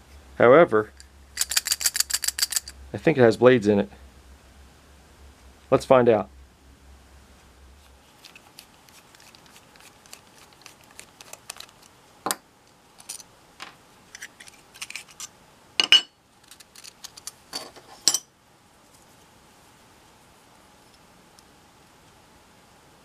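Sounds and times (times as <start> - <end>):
screwdriver metallic clicks and scrapes: 14.1 - 15.3.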